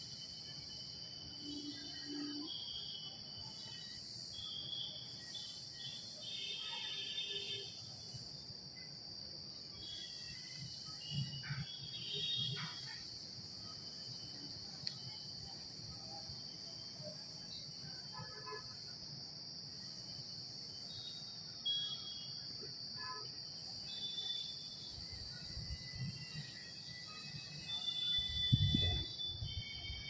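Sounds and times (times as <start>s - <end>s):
insects droning: 0.0s - 30.0s.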